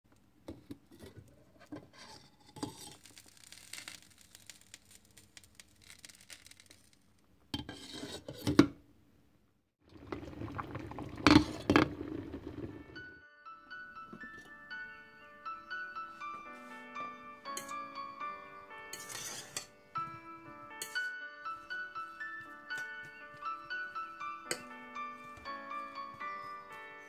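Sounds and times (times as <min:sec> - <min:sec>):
water noise: 0:09.8 - 0:13.2.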